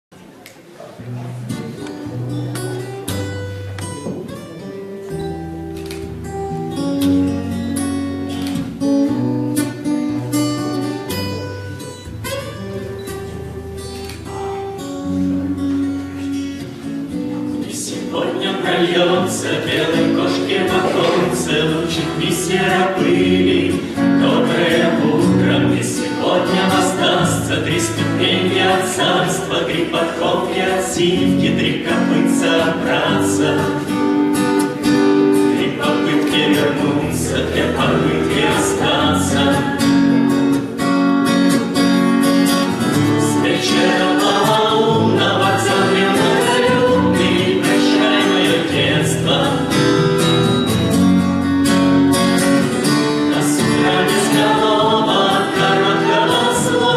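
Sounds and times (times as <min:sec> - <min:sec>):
acoustic guitar playing: 0:01.0 - 0:56.9
group of people singing: 0:17.5 - 0:40.6, 0:42.9 - 0:50.9, 0:52.8 - 0:56.9.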